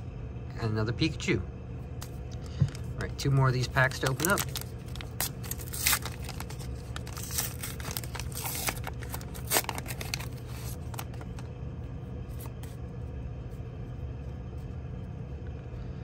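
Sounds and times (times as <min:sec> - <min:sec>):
plastic wrapper tearing and crinkling: 0:03.6 - 0:11.4.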